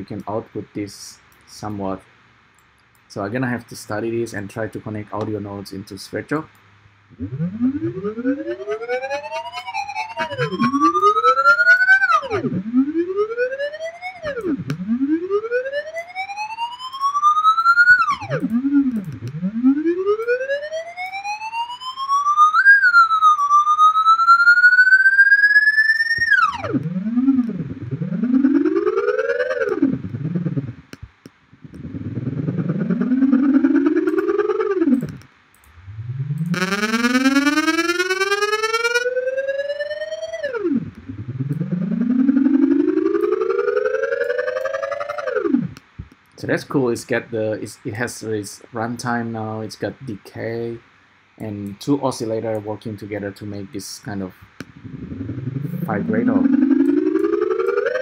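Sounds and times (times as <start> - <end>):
gliding synthesizer tones: 7.1 - 45.9, 54.6 - 58.0.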